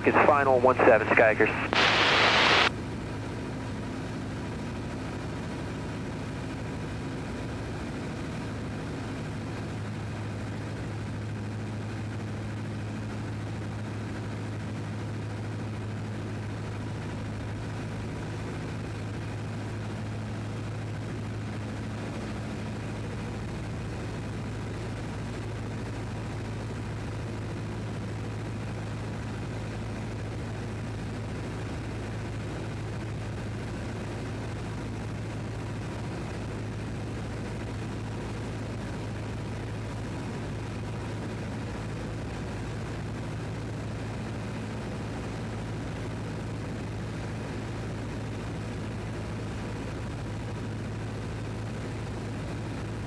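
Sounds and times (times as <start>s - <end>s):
aircraft engine idling: 0.0s - 53.0s.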